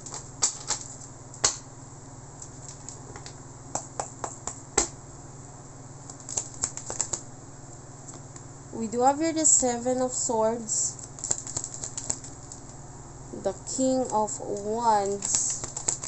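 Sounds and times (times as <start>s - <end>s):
cards clicking and snapping: 0.0s - 1.6s, 6.1s - 7.2s, 11.0s - 12.8s, 14.0s - 16.0s
steady low hum: 0.0s - 16.0s.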